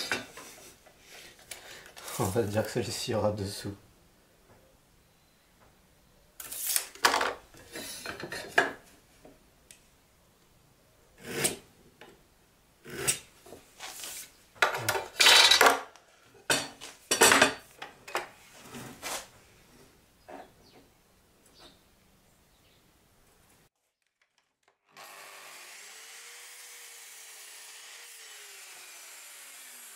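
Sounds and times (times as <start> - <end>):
wood and tools scraping on workbench: 12.9 - 14.4, 18.3 - 19.3.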